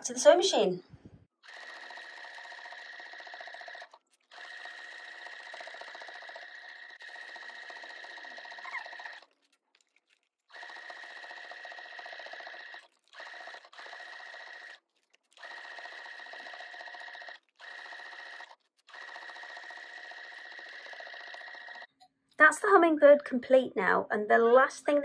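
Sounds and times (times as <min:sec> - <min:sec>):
sewing machine whining: 0:01.4 - 0:09.4, 0:10.5 - 0:22.0.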